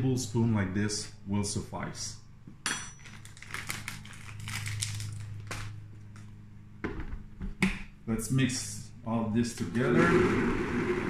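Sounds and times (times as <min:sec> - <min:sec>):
steady low hum: 0:00.0 - 0:11.0
plastic bag crinkling: 0:03.0 - 0:05.8.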